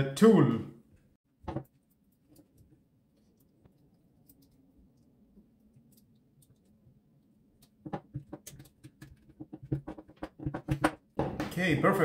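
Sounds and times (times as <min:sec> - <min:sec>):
plastic parts clicking and knocking: 0:07.6 - 0:11.6.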